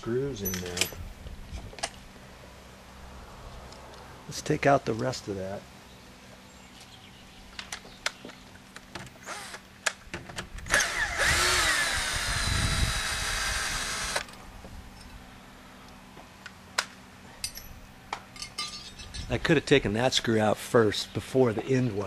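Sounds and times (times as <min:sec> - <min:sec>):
cordless drill motor whining: 0:09.2 - 0:09.6, 0:10.7 - 0:14.3
drill clicks: 0:10.7 - 0:14.3.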